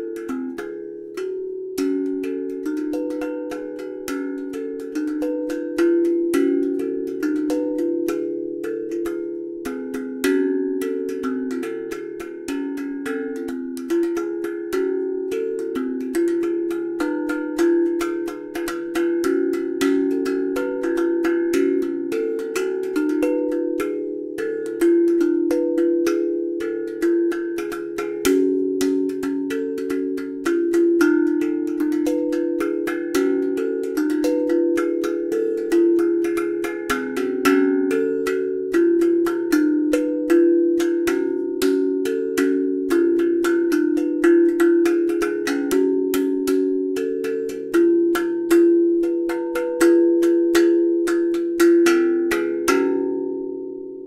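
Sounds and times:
steel tongue drum melody: 0.0 - 54.0.

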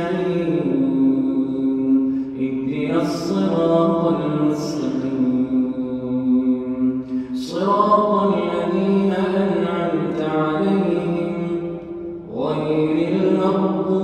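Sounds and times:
man chanting recitation: 0.0 - 14.0.

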